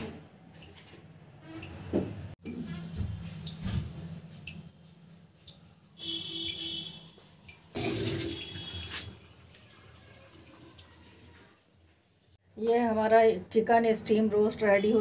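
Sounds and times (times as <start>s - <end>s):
water running from tap: 7.5s - 11.7s.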